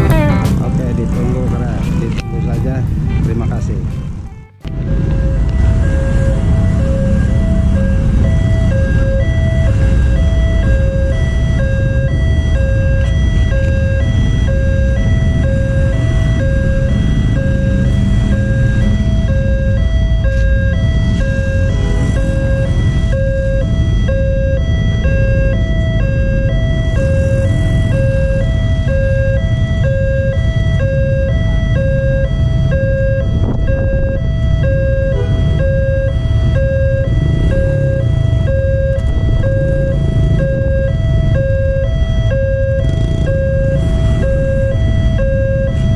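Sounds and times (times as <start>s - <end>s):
motorcycle engines: 0.0s - 45.9s
road traffic rumble: 0.0s - 45.9s
two-tone level crossing alarm: 4.7s - 45.9s.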